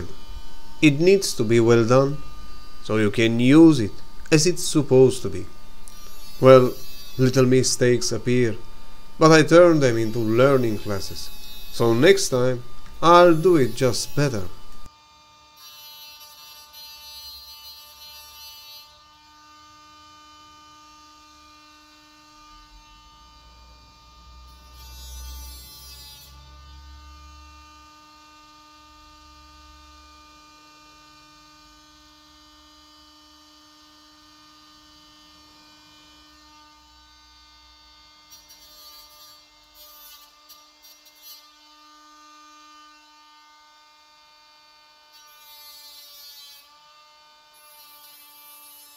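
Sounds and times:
hot stapler gun humming: 0:08.5 - 0:14.9.

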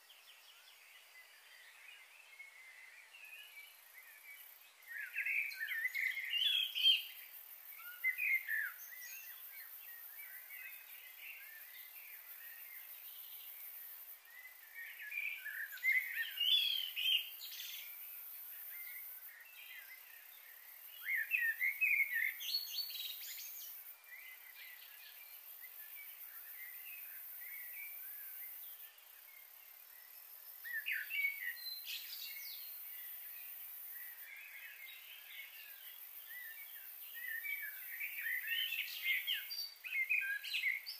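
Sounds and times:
high-pitched hiss: 0:00.0 - 0:40.9.

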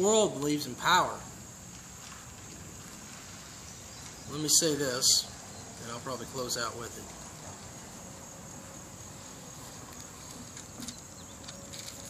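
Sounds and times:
insects chirping: 0:00.0 - 0:12.0
faint rustles or clicks: 0:09.5 - 0:12.0.

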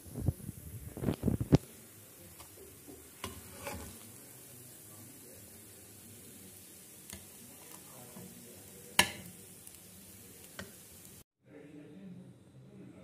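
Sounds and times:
faint steady hiss: 0:00.0 - 0:13.0
metal spatula scraping a pan: 0:02.3 - 0:11.0.

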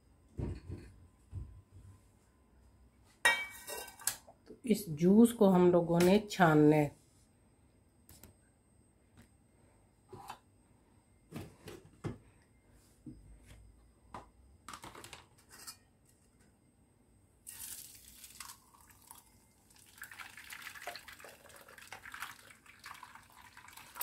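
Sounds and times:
juice pouring into strainer: 0:17.4 - 0:24.0.

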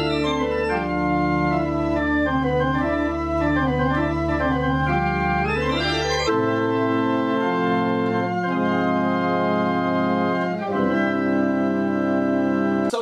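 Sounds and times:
pipe organ playing chords: 0:00.0 - 0:13.0.

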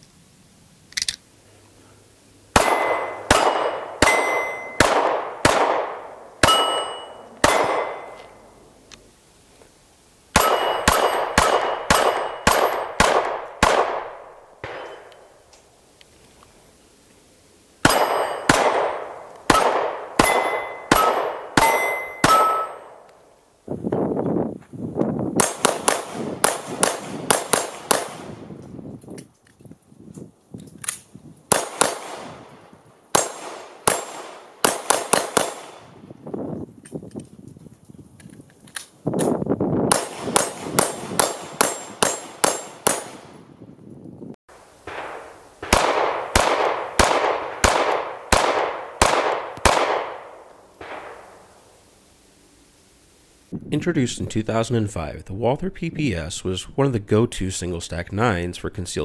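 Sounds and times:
pistol shots: 0:02.5 - 0:08.4, 0:10.4 - 0:15.2, 0:17.8 - 0:23.1, 0:25.4 - 0:28.4, 0:31.5 - 0:32.5, 0:33.1 - 0:36.0, 0:39.9 - 0:43.4, 0:44.9 - 0:51.5
bullets clanging on steel targets: 0:02.6 - 0:05.0, 0:06.4 - 0:08.4, 0:10.4 - 0:13.1, 0:14.6 - 0:15.4, 0:17.8 - 0:18.8, 0:19.5 - 0:23.0, 0:39.9 - 0:43.2.

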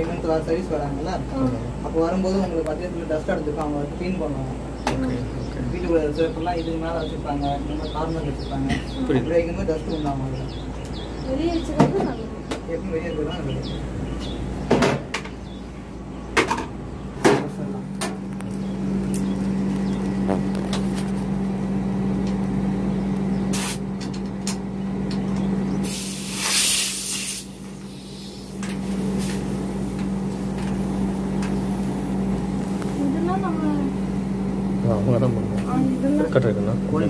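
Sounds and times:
air conditioner unit humming: 0:00.0 - 0:37.0
gas hissing from port: 0:23.4 - 0:23.9, 0:25.7 - 0:35.0.

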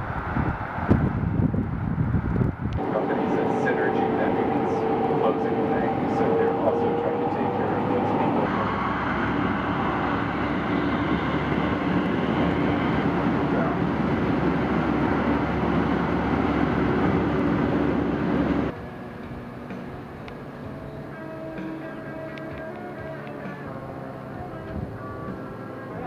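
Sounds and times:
train running rumble: 0:00.0 - 0:26.0
faint steady tones: 0:02.8 - 0:26.0.

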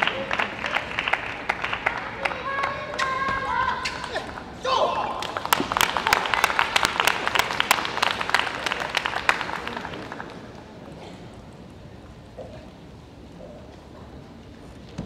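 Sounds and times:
crowd applauding: 0:00.0 - 0:11.0.

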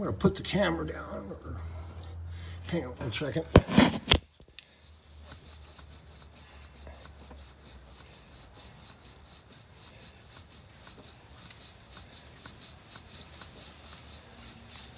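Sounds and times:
faint rubbing: 0:03.3 - 0:04.2.

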